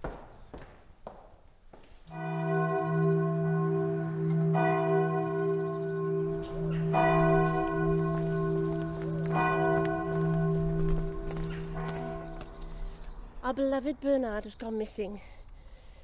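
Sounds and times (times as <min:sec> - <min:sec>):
church bells ringing: 0:02.1 - 0:14.0.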